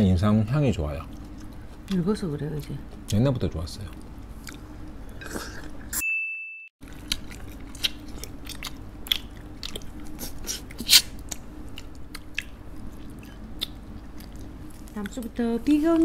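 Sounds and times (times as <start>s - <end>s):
chewing and lip-smacking: 1.0s - 5.8s, 6.8s - 15.4s
bright ding: 6.0s - 6.7s.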